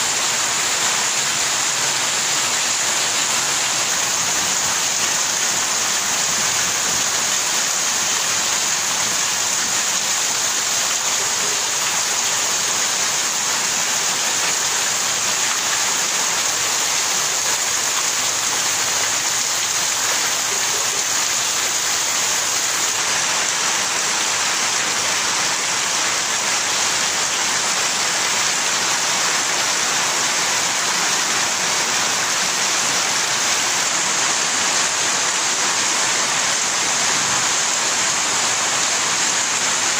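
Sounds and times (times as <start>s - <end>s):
heavy rain on hard ground: 0.0s - 39.9s.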